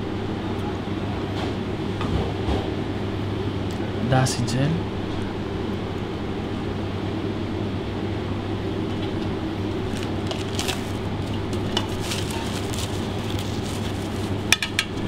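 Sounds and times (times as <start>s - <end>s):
kitchen ventilation hum: 0.0s - 15.0s.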